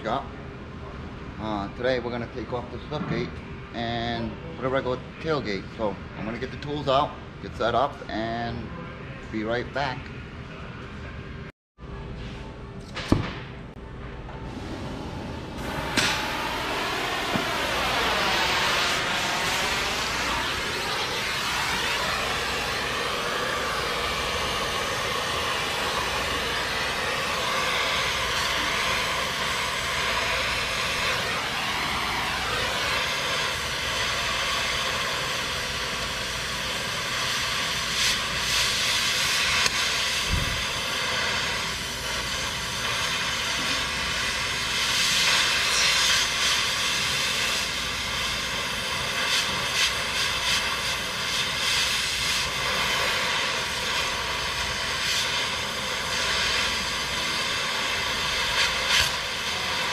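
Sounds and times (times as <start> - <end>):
gas cutting torch hissing: 14.5 - 59.9
crackling sparks and spatter: 15.6 - 59.9.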